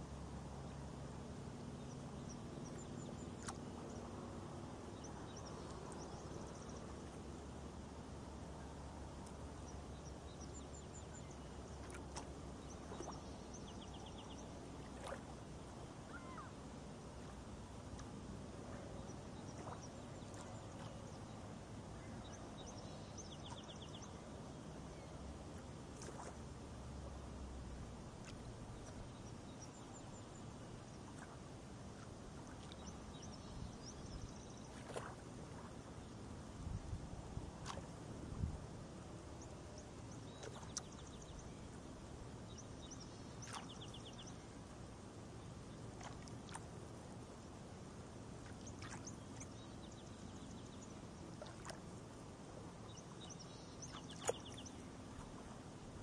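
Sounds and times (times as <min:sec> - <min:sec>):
small birds chirping: 0:08.6 - 0:15.2, 0:16.0 - 0:16.6, 0:17.9 - 0:24.3, 0:32.0 - 0:36.1, 0:39.3 - 0:44.6, 0:52.8 - 0:56.0.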